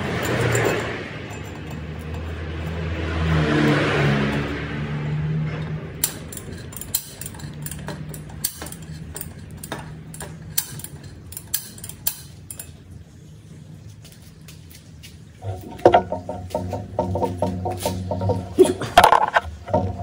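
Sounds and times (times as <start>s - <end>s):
metallic clicks of tools and parts: 0.0s - 12.8s.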